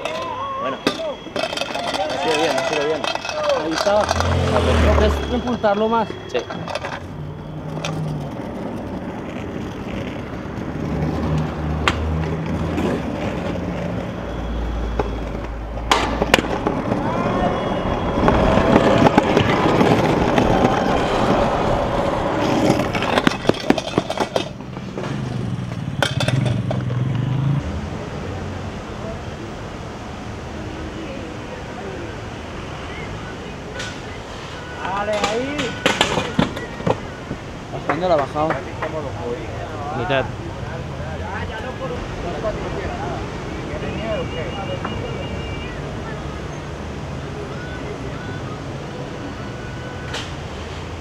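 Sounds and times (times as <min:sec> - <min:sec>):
scooter clacking on ground: 0:00.0 - 0:04.4, 0:22.2 - 0:27.0
scooter wheels rolling: 0:00.0 - 0:27.2, 0:33.7 - 0:39.4.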